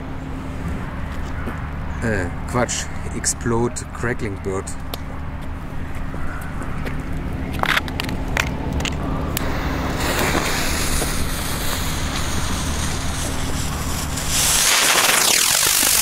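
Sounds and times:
fireworks hissing: 9.4 - 16.0.

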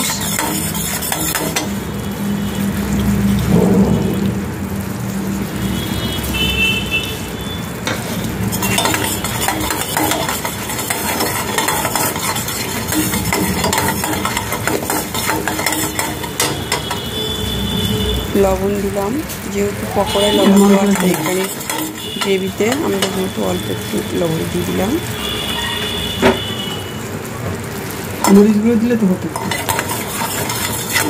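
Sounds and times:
metal spatula scraping pan: 0.0 - 1.8, 7.8 - 17.2, 19.8 - 23.6, 29.3 - 31.0
sauce sizzling and bubbling: 0.0 - 31.0.

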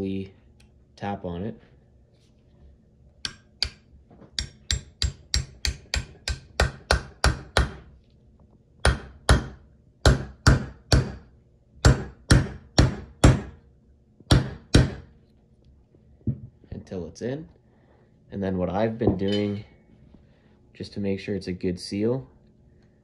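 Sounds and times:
hammer tapping on metal: 3.2 - 3.8, 4.4 - 7.8.

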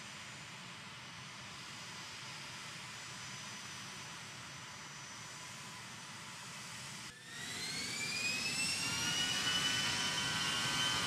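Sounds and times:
jet engines whining: 7.1 - 11.0.

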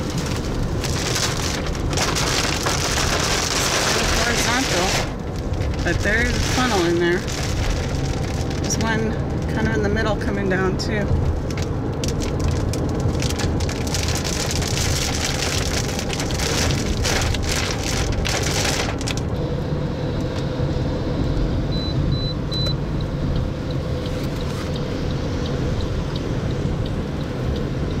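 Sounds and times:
rushing crackly hiss: 0.0 - 8.8
car road rumble: 0.0 - 28.0
short high beeps: 21.7 - 22.8.

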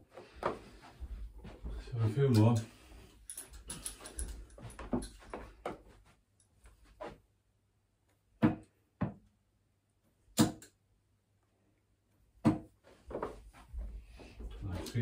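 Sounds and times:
darts thudding into dartboard: 8.4 - 9.3, 10.3 - 10.8, 12.4 - 12.8.

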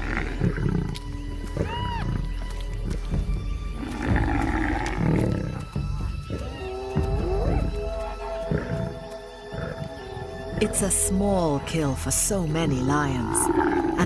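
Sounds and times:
lions growling: 0.0 - 2.3, 3.7 - 10.7, 13.2 - 14.0
background music: 0.0 - 14.0.

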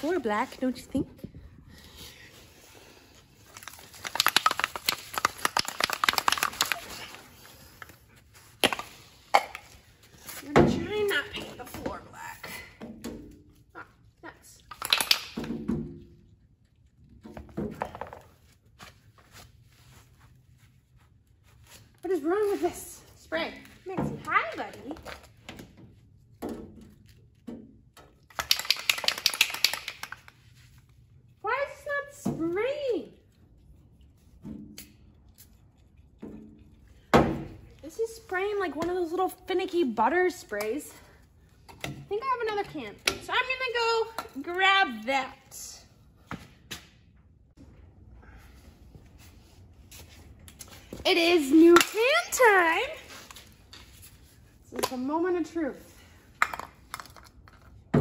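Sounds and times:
aerosol can ball rattling: 3.6 - 7.0, 28.3 - 30.3.

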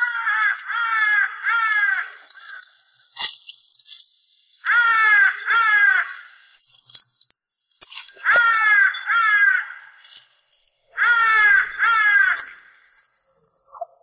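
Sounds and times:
crow cawing: 0.0 - 2.8, 4.6 - 6.5, 8.2 - 10.2, 10.9 - 13.0.

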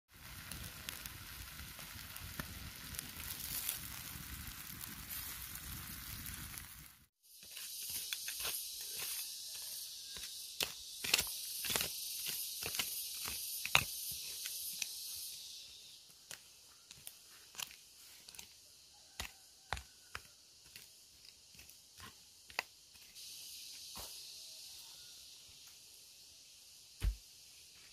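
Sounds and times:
octopus sizzling on hot stone: 0.1 - 27.8
steady high hiss: 0.1 - 27.9
hand hoe chopping soil: 7.4 - 14.9, 27.0 - 27.2.

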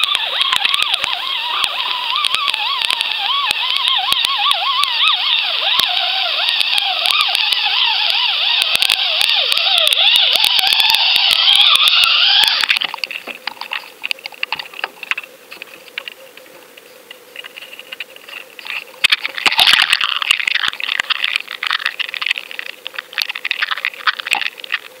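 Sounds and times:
warbling underwater whine: 0.0 - 25.0
underwater clicks and knocks: 17.4 - 24.9
rushing water: 17.5 - 25.0.

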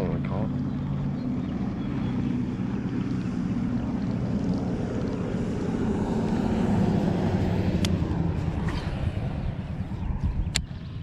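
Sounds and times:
engine droning: 0.0 - 11.0.

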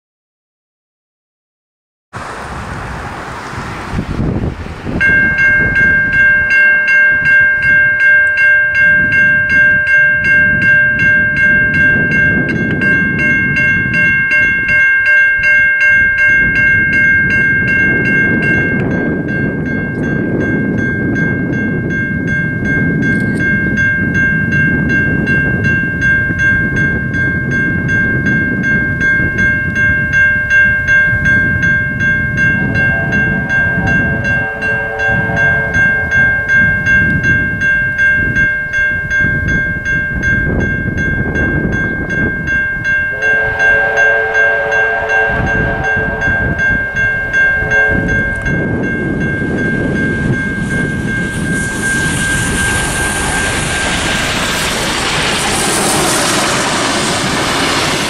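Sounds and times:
crossing bells ringing: 4.8 - 58.0
train horn: 32.5 - 36.9, 43.1 - 48.6.

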